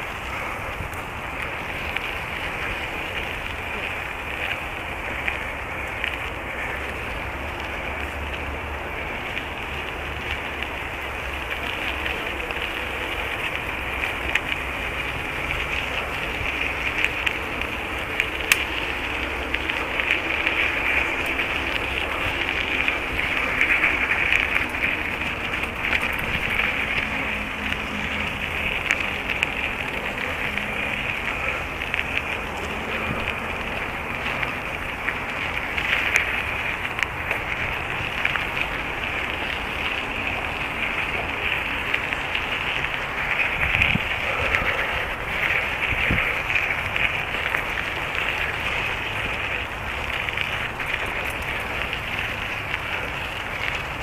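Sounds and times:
bicycle tyres rolling on dirt: 0.0s - 54.0s.

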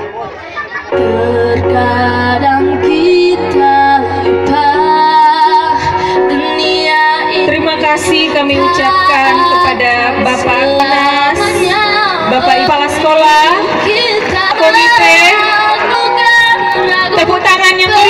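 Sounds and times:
girl singing through pa system: 1.0s - 18.0s.

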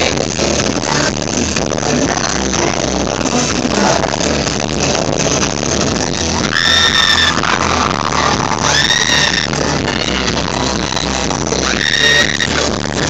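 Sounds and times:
loud live concert music: 0.0s - 13.0s
high-pitched scream: 6.4s - 13.0s.

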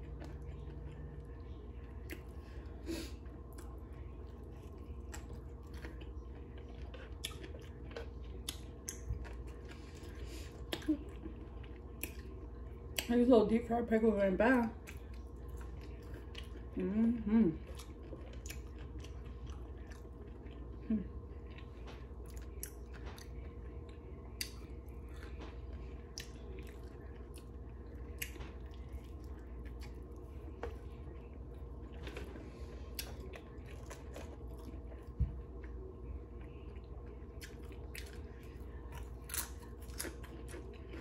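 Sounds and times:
person chewing crunchy food: 0.0s - 13.1s, 14.8s - 16.8s, 17.6s - 41.0s
faint steady hum: 0.0s - 41.0s.

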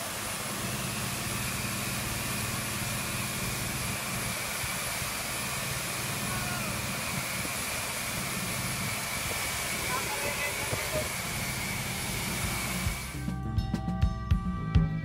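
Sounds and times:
motorboat engine running: 0.0s - 15.0s
rush of wind and water: 4.2s - 13.2s.

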